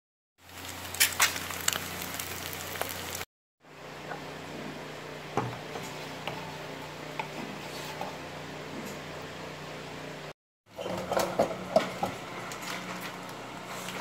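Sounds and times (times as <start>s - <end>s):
eggs sizzling in oil: 0.4s - 3.3s.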